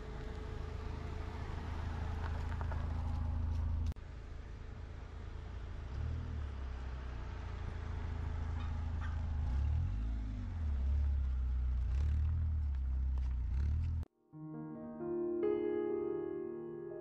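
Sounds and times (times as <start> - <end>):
car engine rumbling: 0.0 - 14.1.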